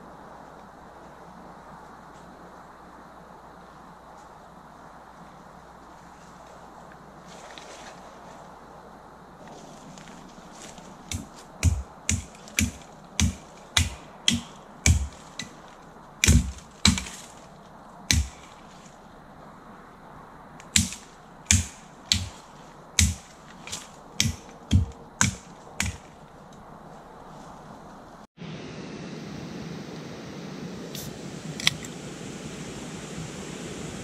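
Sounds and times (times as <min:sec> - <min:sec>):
hatchet chopping wood: 0:11.1 - 0:17.4, 0:18.1 - 0:18.6, 0:20.6 - 0:26.1.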